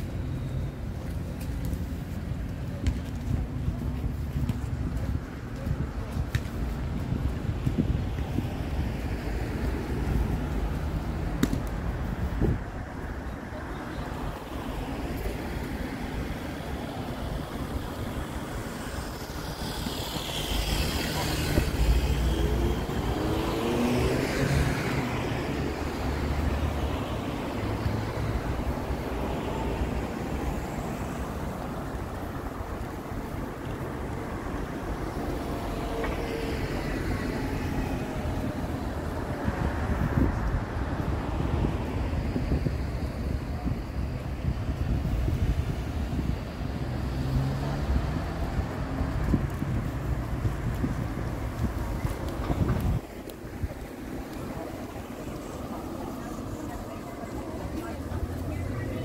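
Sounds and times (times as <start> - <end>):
wind buffeting microphone: 0.0 - 35.9, 37.6 - 47.2, 47.9 - 59.0
traffic rumble: 0.0 - 59.0
vehicle passing by: 18.4 - 42.4, 45.3 - 53.0.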